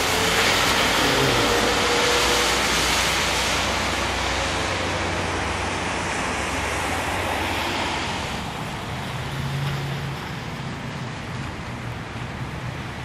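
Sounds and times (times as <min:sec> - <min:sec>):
tyres hissing on wet pavement: 0:00.0 - 0:13.0.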